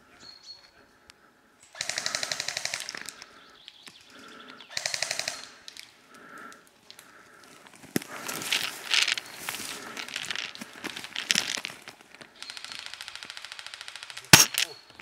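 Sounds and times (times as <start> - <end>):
airsoft gun full-auto bursts: 1.8 - 3.1, 4.7 - 5.5, 12.3 - 14.5.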